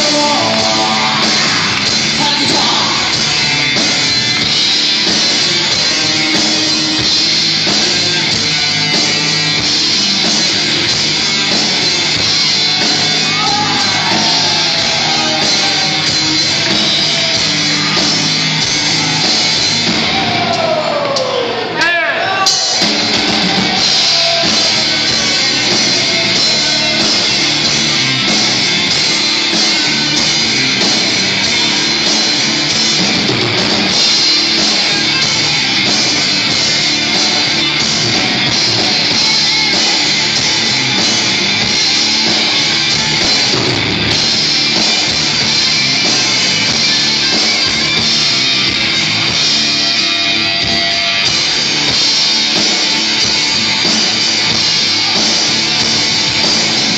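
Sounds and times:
live rock band playing: 0.0s - 56.9s.

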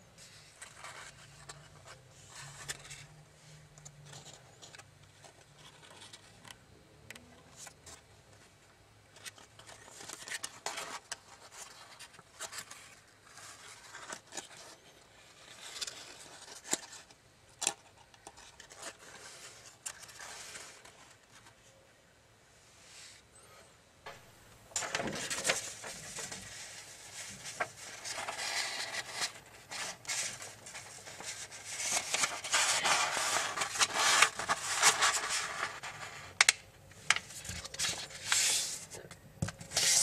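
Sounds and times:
foil paper crinkling: 24.8s - 36.0s.

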